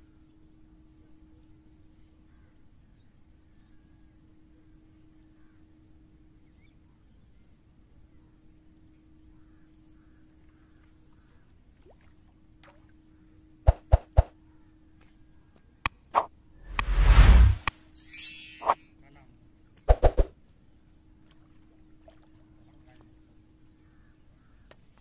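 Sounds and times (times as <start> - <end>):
faint outdoor background: 0.0 - 25.0
loud rushing burst: 16.2 - 17.7.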